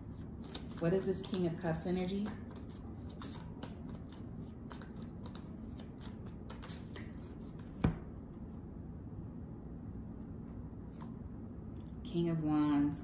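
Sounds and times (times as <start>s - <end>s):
cards being shuffled: 0.1s - 8.0s.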